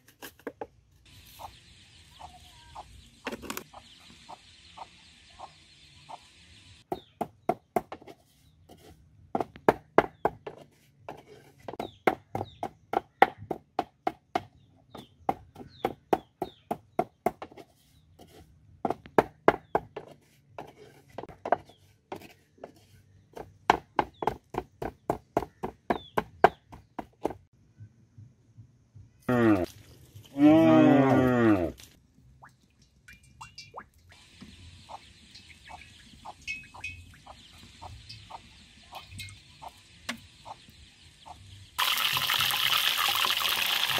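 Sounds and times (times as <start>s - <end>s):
pestle pounding in wooden mortar: 9.3s - 10.7s, 11.7s - 17.6s, 18.8s - 20.2s, 23.4s - 27.5s.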